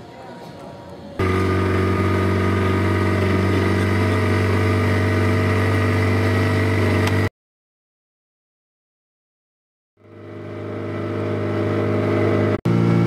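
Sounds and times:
outboard motor running: 0:01.2 - 0:07.3, 0:10.0 - 0:13.0.

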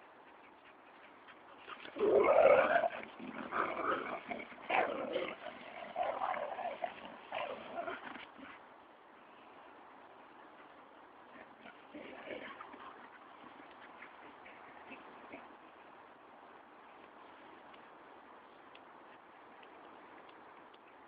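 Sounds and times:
dogs playing: 0:00.0 - 0:08.7, 0:10.0 - 0:21.0.

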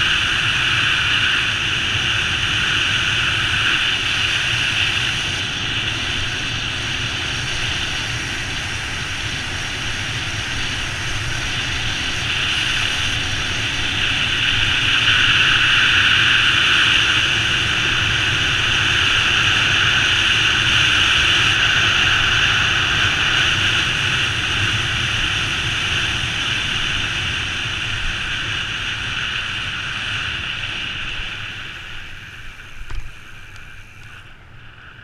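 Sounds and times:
wind rushing over microphone: 0:00.0 - 0:35.0.

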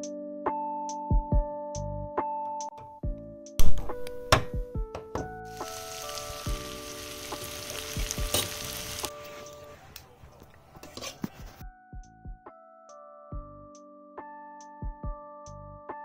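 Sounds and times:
soft piano music: 0:00.0 - 0:09.9
spices sizzling in oil: 0:05.5 - 0:09.5.

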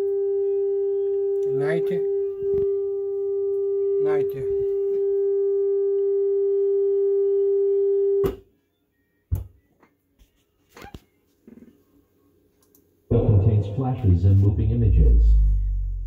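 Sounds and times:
steady test tone: 0:13.1 - 0:16.0.

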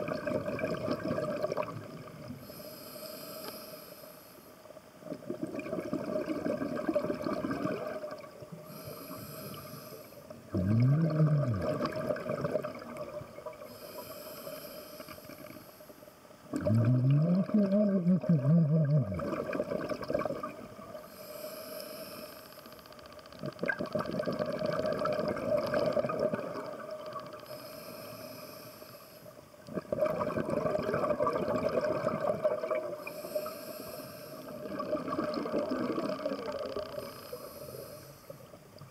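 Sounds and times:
exhaled bubbles bursting: 0:00.0 - 0:02.2, 0:05.2 - 0:08.3, 0:10.5 - 0:13.6, 0:16.5 - 0:20.9, 0:23.4 - 0:27.1, 0:29.7 - 0:33.0, 0:34.5 - 0:36.8
inhaled hiss through regulator: 0:02.3 - 0:04.7, 0:08.5 - 0:10.4, 0:13.3 - 0:16.3, 0:20.9 - 0:22.8, 0:27.2 - 0:29.5, 0:33.0 - 0:34.7, 0:36.9 - 0:38.6.

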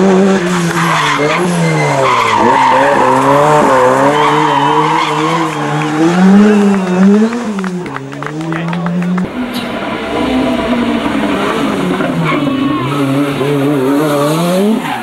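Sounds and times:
rally car engine revving: 0:00.0 - 0:15.0
tyres squealing: 0:00.5 - 0:06.7.

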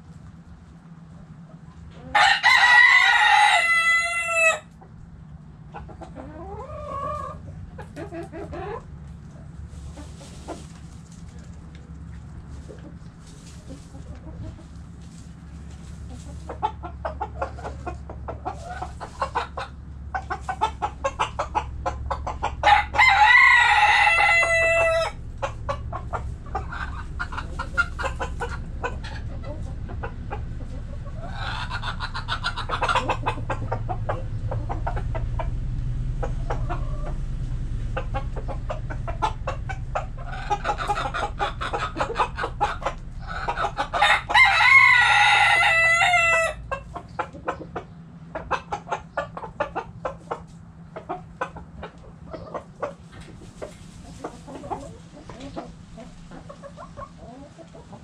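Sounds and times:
hens clucking: 0:00.0 - 0:58.0
rooster crowing: 0:02.1 - 0:04.7, 0:22.4 - 0:25.2, 0:43.3 - 0:46.7.

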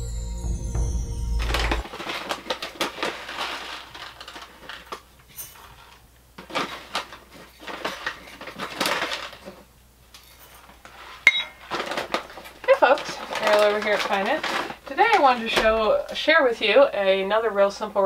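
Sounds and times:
rice grains rattling into metal hopper: 0:01.9 - 0:04.9.

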